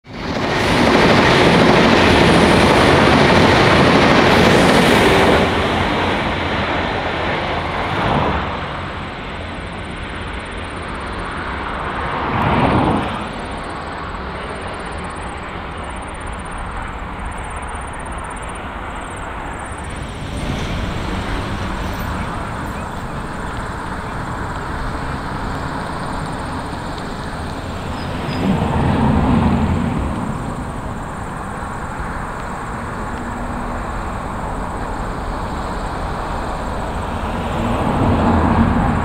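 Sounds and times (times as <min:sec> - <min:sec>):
diesel train running: 0:00.0 - 0:39.0.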